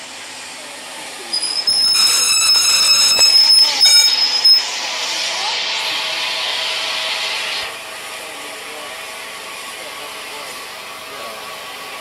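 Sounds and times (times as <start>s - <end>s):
steam locomotive hissing: 0.0s - 12.0s
locomotive rumble: 0.5s - 6.1s.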